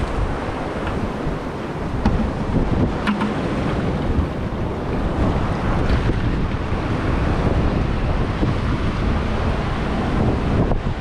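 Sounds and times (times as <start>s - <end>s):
surf breaking on rocky shore: 0.0s - 11.0s
wind buffeting microphone: 0.0s - 11.0s.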